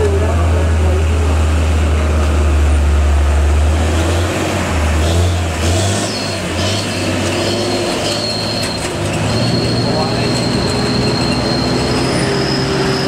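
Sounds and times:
truck diesel engine labouring: 0:00.0 - 0:13.0
thin high squeal: 0:06.1 - 0:13.0.

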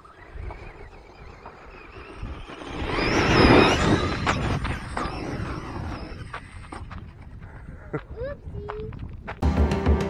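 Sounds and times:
radio-controlled truck driving past: 0:00.0 - 0:07.4.

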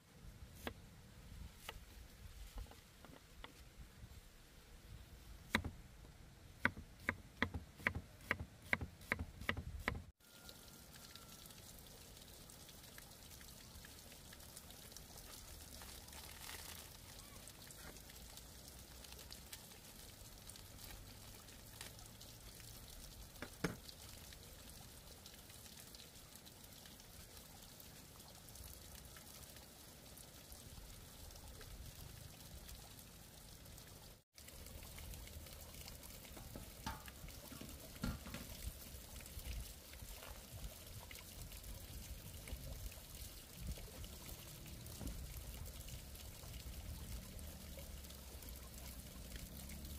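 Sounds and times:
cleaver chopping on wooden block: 0:06.6 - 0:10.0.

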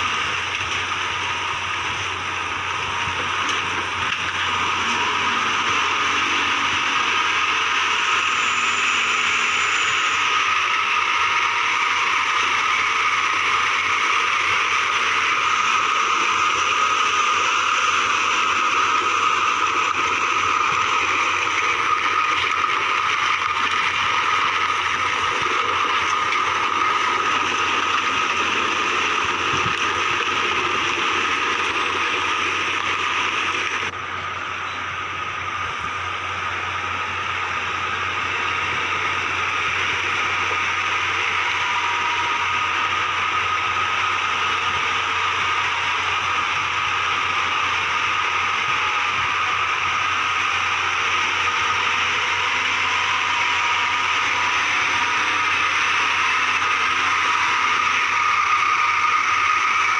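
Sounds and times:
truck diesel engine under load: 0:00.0 - 0:59.9.

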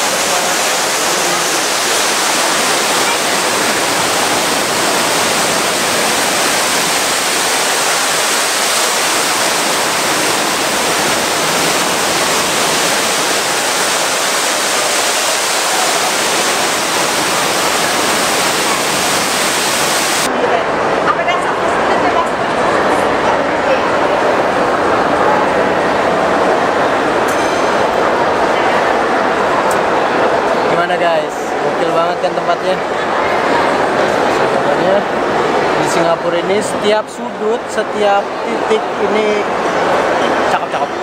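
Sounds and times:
water pouring into pool: 0:00.0 - 0:20.3.

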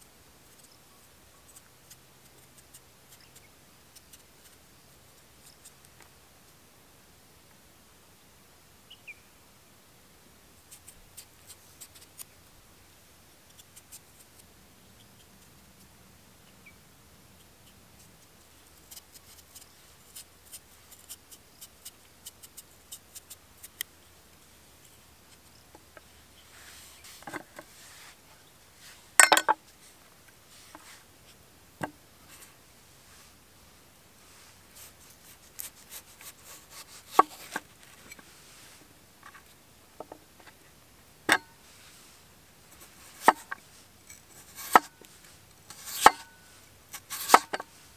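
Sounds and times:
knife peeling potato: 0:10.7 - 0:12.4, 0:13.5 - 0:14.5, 0:17.4 - 0:23.9, 0:34.8 - 0:38.1, 0:42.8 - 0:47.8.

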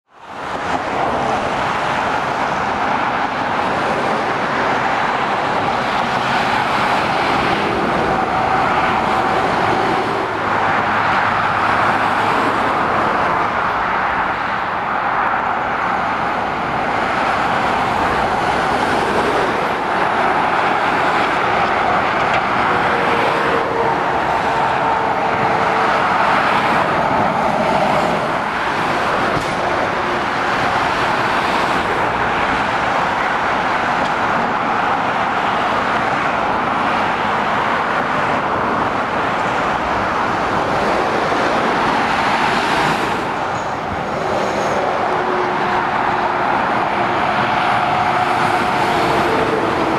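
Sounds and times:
motorway traffic: 0:00.0 - 0:49.9.

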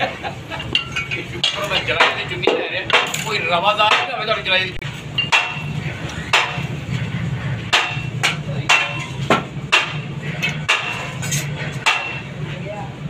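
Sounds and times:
steady low hum: 0:00.0 - 0:13.0
sharp metallic knocks: 0:00.7 - 0:04.4, 0:05.1 - 0:06.8, 0:07.6 - 0:12.4.

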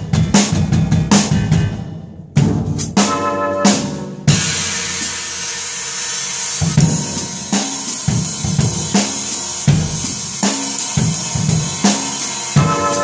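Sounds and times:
bass drum hits: 0:00.0 - 0:03.0, 0:03.7 - 0:05.3
drum kit groove: 0:00.0 - 0:13.0
sizzling cymbal wash: 0:04.3 - 0:13.0.

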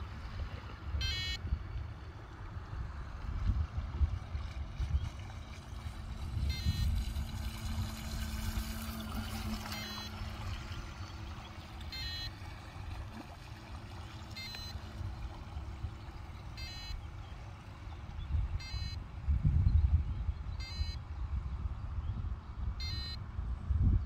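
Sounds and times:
high-pitched electronic beeps: 0:01.0 - 0:01.4, 0:11.9 - 0:12.3, 0:14.4 - 0:14.8, 0:16.6 - 0:17.0, 0:18.6 - 0:19.0, 0:20.6 - 0:21.0, 0:22.8 - 0:23.2.

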